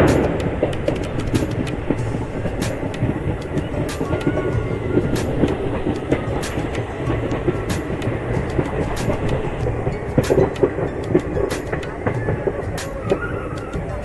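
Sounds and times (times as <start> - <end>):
clicks and rattles: 0.0 - 4.4
train wheels rumbling on rails: 0.0 - 14.0.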